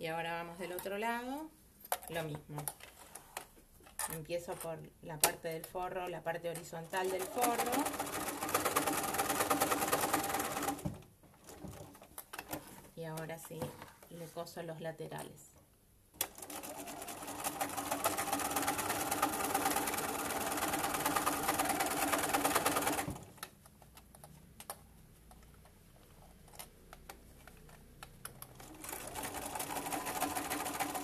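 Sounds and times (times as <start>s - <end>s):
sewing machine stitching: 7.0s - 12.0s, 16.2s - 23.3s, 28.3s - 31.0s.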